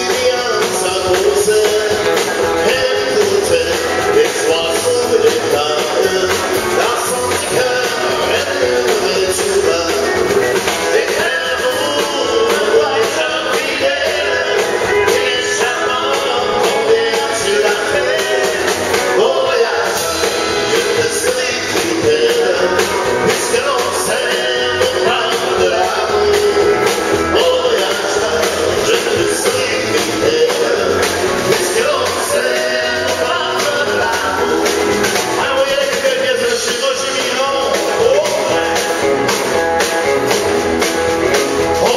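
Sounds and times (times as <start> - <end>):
man and woman singing: 0.0 - 39.0, 41.6 - 41.9
drum kit: 0.0 - 41.9.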